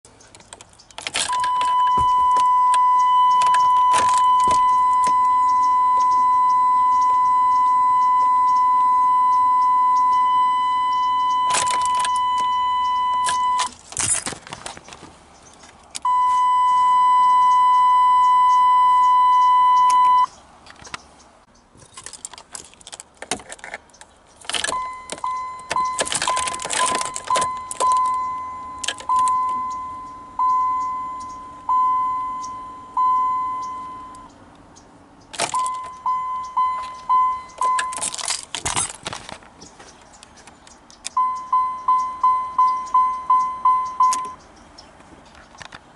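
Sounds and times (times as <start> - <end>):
steady warning beep: 1.2 - 13.7, 16.0 - 20.3, 24.6 - 34.4, 35.4 - 38.2, 41.0 - 44.5
keys jangling: 21.8 - 29.8, 36.7 - 39.4.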